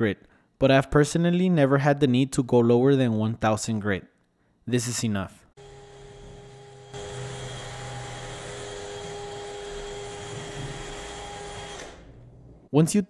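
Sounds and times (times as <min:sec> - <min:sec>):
drill motor whine: 0:05.6 - 0:12.1.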